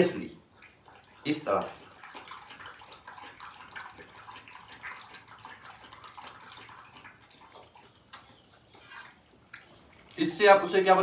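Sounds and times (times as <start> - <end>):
metal spoon scraping bowl: 8.8 - 9.2.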